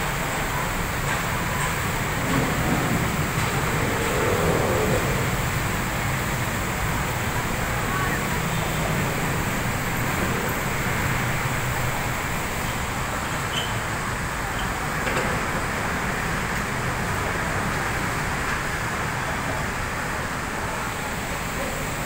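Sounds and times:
cars and vans passing: 0.0 - 22.0
motorcycles passing: 0.2 - 13.3.

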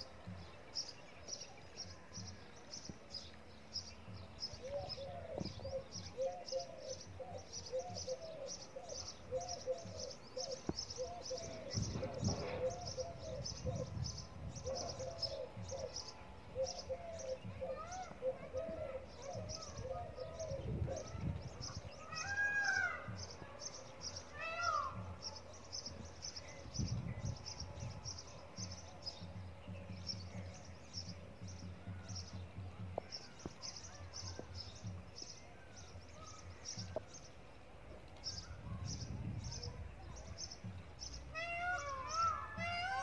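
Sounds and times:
arching mewing calls: 41.2 - 43.0.

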